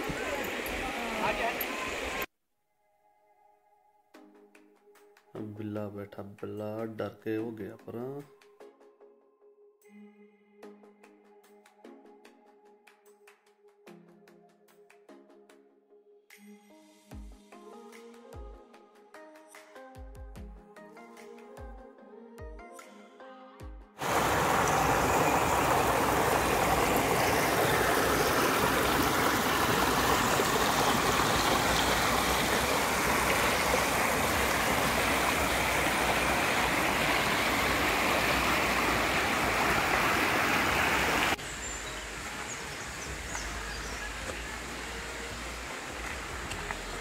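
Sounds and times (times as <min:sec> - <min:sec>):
stream rushing over boulders: 0:00.0 - 0:02.3, 0:24.0 - 0:47.0
quiet outdoor background: 0:41.4 - 0:47.0.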